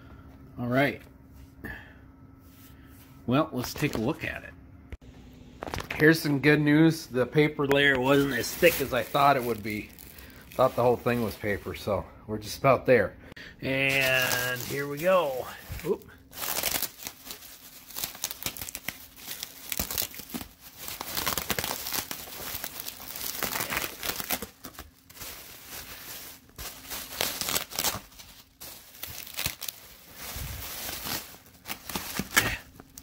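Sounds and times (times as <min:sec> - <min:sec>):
bubble wrap crinkling: 0:07.8 - 0:11.8, 0:13.7 - 0:33.0.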